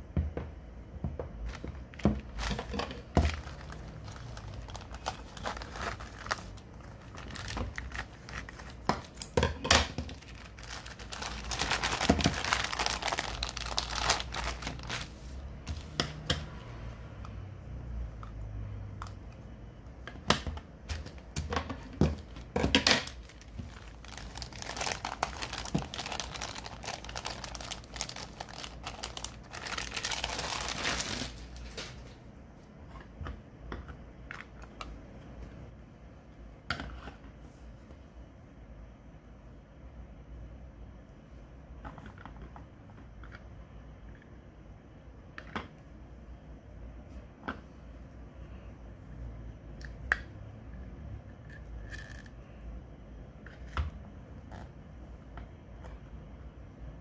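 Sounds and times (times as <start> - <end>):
plastic bag crinkling: 1.5 - 15.2, 22.2 - 32.1.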